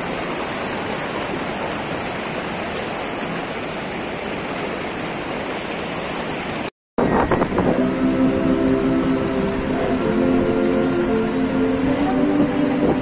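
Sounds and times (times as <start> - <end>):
river water rushing over a weir: 0.0 - 13.0
music: 7.1 - 13.0.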